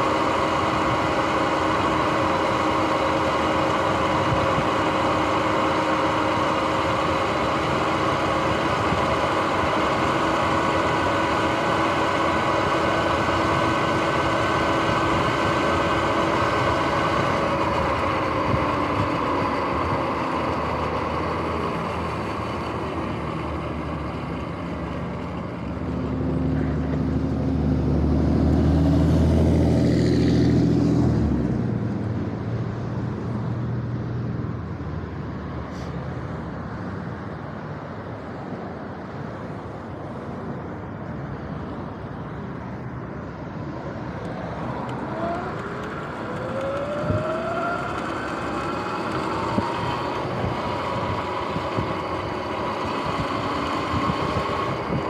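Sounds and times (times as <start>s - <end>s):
electric dirt bike drivetrain whining: 0.0s - 33.6s, 43.9s - 55.0s
passing vehicle engine rumbling: 0.0s - 55.0s
tyre and wind noise: 48.8s - 55.0s.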